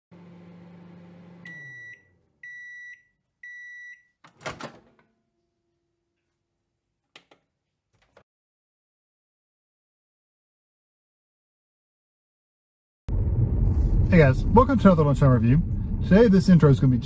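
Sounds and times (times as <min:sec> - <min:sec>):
microwave oven humming: 0:00.1 - 0:02.7.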